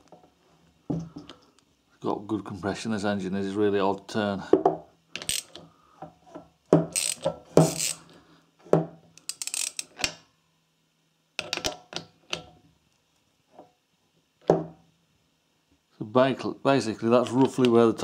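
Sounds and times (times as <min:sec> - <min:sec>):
socket ratchet wrench clicking: 0:05.2 - 0:05.6, 0:06.9 - 0:08.0, 0:09.2 - 0:10.2.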